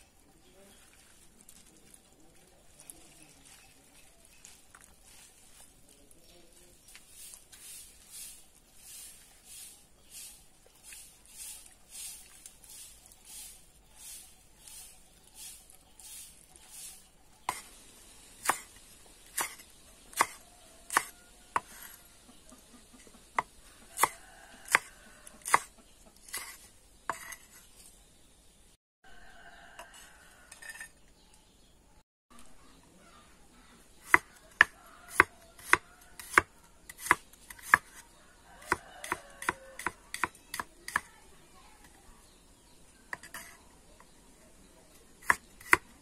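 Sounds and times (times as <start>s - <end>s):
hands rubbing wet vegetables: 0.4s - 17.6s
cleaver chopping on wooden board: 19.4s - 21.9s, 23.4s - 25.7s, 34.0s - 38.0s, 38.7s - 41.1s.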